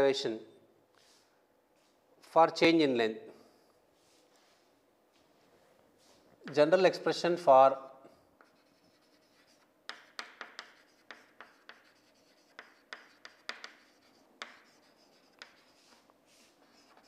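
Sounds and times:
chalk writing on chalkboard: 8.1 - 17.0.

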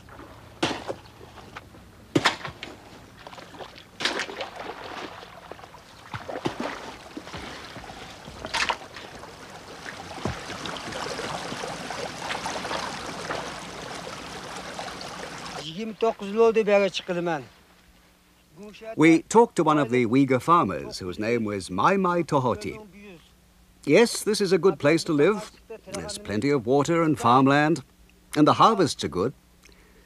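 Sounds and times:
hoe chopping into soil: 0.6 - 1.0, 2.1 - 2.8, 6.2 - 7.7
water trickling in ditch: 3.1 - 15.7.

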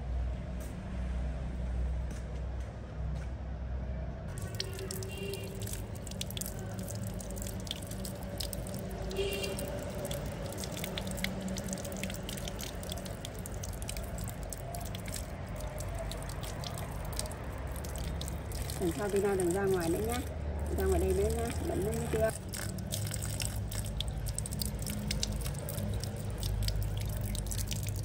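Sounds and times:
hands splashing water: 4.3 - 28.0
water dripping: 4.3 - 28.0
water running from tap: 4.3 - 28.0.

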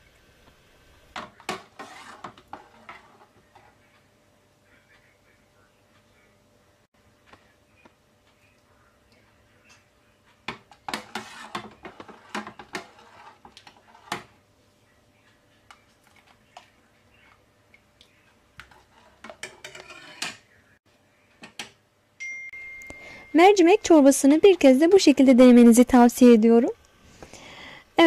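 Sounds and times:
metal ladle scraping a pot: 1.4 - 3.8, 10.8 - 14.3, 18.6 - 20.4.

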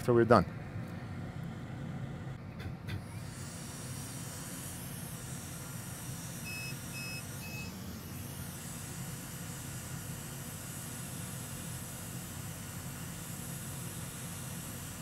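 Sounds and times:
short electronic beeps: 6.4 - 7.8.

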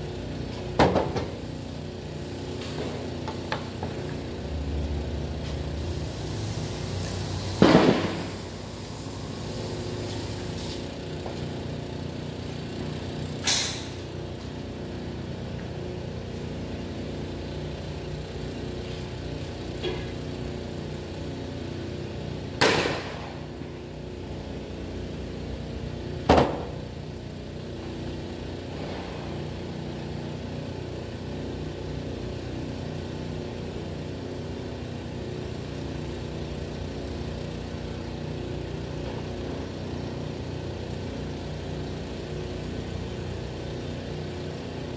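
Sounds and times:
steady motor-like hum: 0.0 - 44.9.

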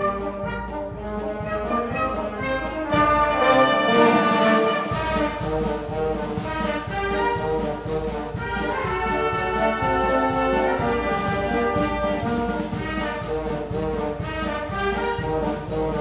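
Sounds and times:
brass band playing: 0.0 - 16.0
steady drum beat: 0.0 - 16.0.

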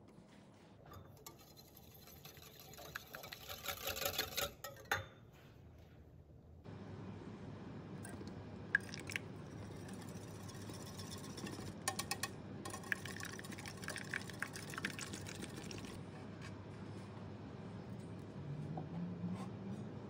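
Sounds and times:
milk pouring into bowl: 8.1 - 10.0, 12.7 - 16.0.

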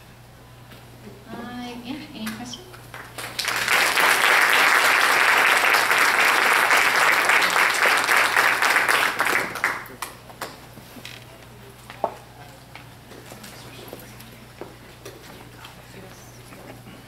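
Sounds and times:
audience applauding: 2.9 - 10.6.

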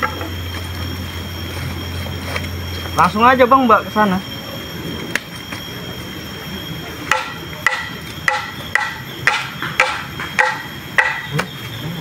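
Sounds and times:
chopping strikes with ringing tone: 7.1 - 11.6.

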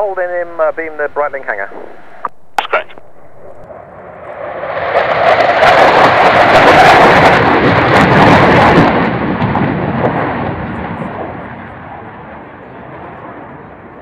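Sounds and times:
jet flying past: 3.0 - 14.0.

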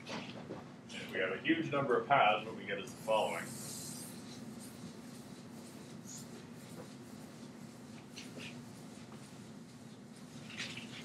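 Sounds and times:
steady low hum: 0.0 - 11.0
eraser swishing on blackboard: 3.0 - 11.0.

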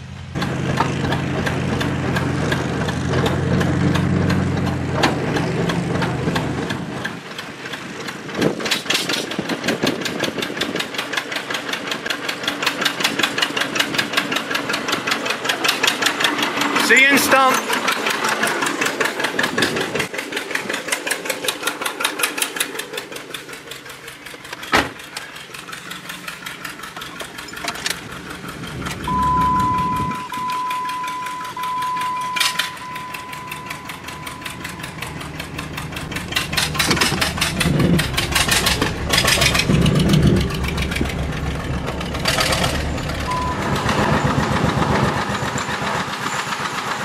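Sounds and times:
tractor engine putting: 0.0 - 47.0
steady electronic tone: 29.1 - 35.8.

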